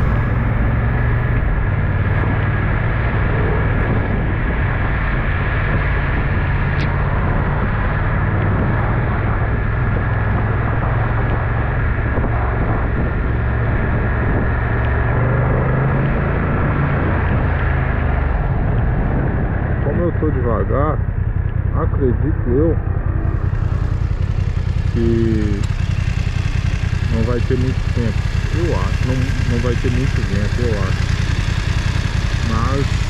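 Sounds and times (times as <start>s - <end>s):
wind noise on microphone: 0.0s - 20.5s
motorcycle engine running: 0.0s - 33.0s
tyres on wet road: 4.4s - 33.0s.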